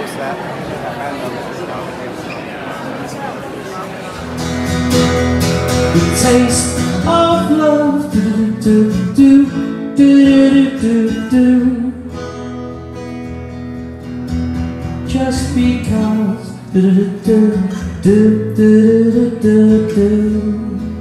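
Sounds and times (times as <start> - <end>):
strummed acoustic guitar: 4.0 - 21.0
man singing: 5.8 - 12.2, 15.0 - 21.0.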